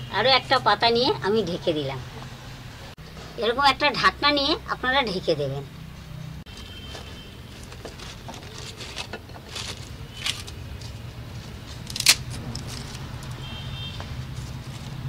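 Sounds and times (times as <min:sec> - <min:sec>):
wooden sticks clicking and knocking: 0:07.5 - 0:15.0.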